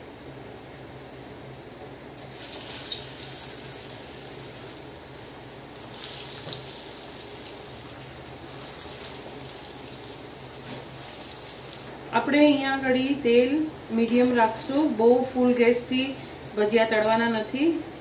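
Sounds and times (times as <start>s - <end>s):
batter sizzling in hot oil: 2.2s - 11.9s.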